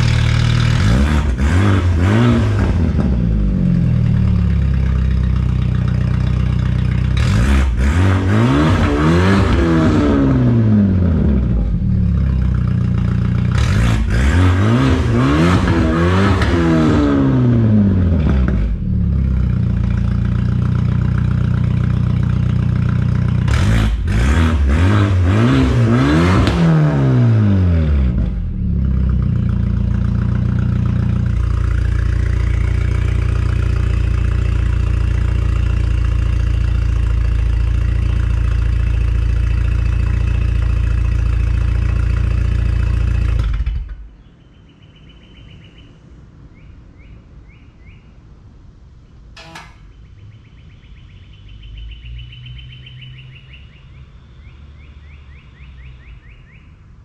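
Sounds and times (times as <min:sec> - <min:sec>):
car engine idling and revving: 0:00.0 - 0:46.2, 0:51.2 - 0:57.0
faint bird chirps: 0:44.2 - 0:48.3, 0:49.4 - 0:56.9.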